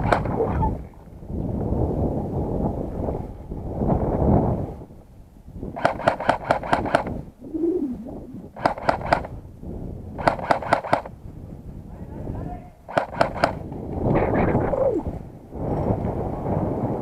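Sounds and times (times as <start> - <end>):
airsoft rifle firing: 0.0 - 0.4, 5.8 - 7.2, 8.6 - 9.4, 10.2 - 11.1, 12.9 - 13.7
rush of noise: 6.9 - 9.3, 13.2 - 17.0.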